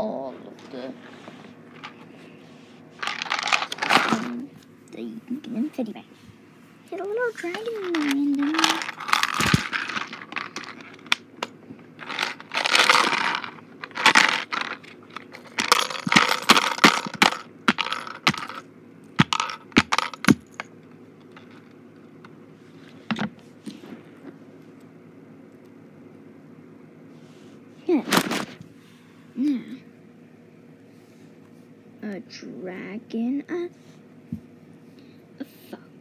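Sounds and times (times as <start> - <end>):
handling rustling and scraping: 0.5 - 4.4, 7.0 - 18.6.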